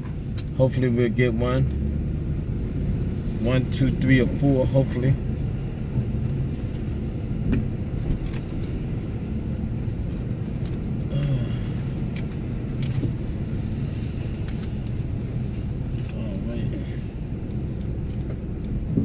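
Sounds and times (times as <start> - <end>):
car engine and road noise: 0.0 - 19.0
light clicks and rattles: 6.2 - 10.9.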